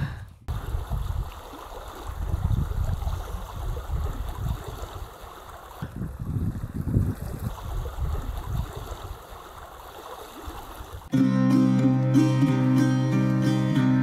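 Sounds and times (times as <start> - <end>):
wind buffeting microphone: 0.0 - 9.4
creek flowing: 0.5 - 14.0.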